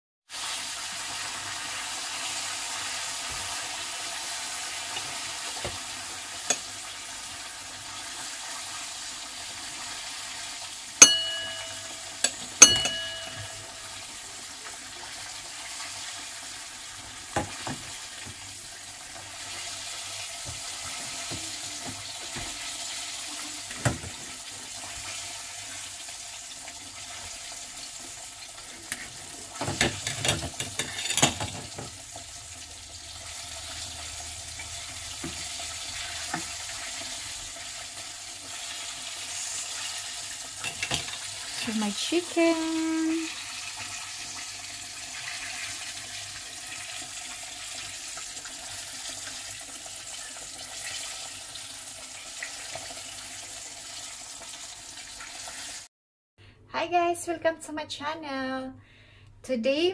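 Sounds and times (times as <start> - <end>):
chicken sizzling in hot oil: 0.2 - 55.9
utensils clinking on metal: 11.0 - 13.9, 29.8 - 31.6.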